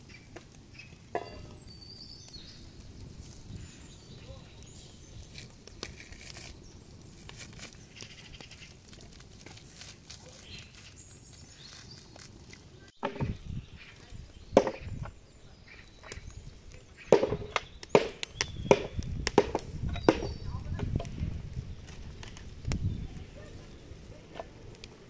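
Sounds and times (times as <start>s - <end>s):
wire grill baskets knocking: 1.1s - 1.6s, 13.0s - 13.5s, 14.6s - 15.1s, 17.0s - 21.2s.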